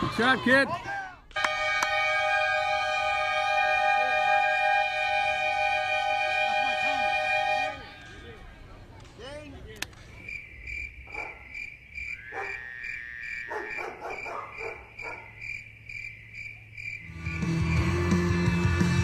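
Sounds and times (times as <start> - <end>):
crickets chirping: 9.2 - 18.5
music: 17.1 - 19.0.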